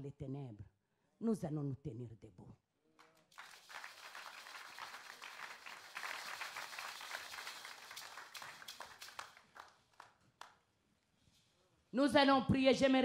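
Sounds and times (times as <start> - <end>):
congregation clapping: 3.0 - 10.6.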